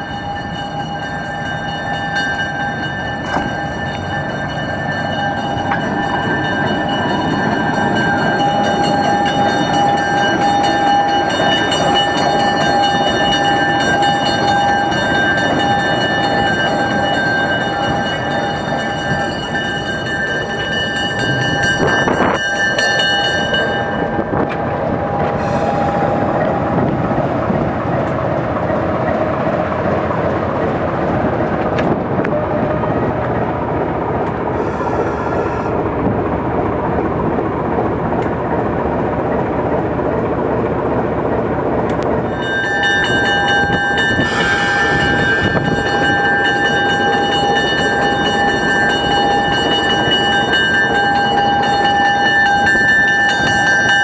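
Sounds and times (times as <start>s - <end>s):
crossing warning tone: 0.0s - 27.3s, 34.6s - 35.9s, 42.2s - 54.0s
diesel locomotive running: 0.0s - 54.0s.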